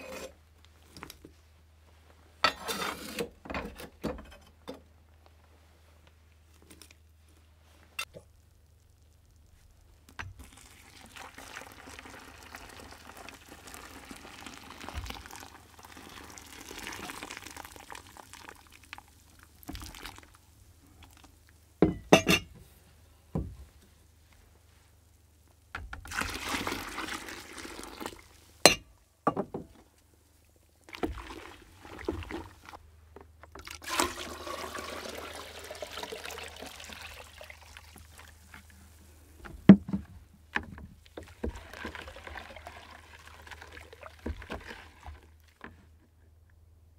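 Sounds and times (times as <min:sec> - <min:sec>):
water pouring into bucket: 0:10.4 - 0:20.4, 0:26.1 - 0:28.4, 0:30.9 - 0:32.8, 0:33.6 - 0:38.7, 0:41.1 - 0:45.7.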